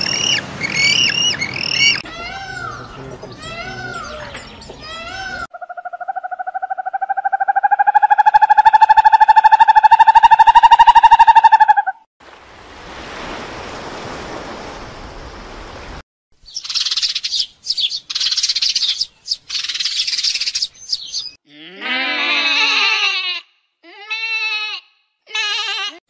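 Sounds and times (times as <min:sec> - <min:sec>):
high bird chirping: 0:00.0 - 0:12.0, 0:16.4 - 0:21.4
quavering falling bleat: 0:21.5 - 0:26.0.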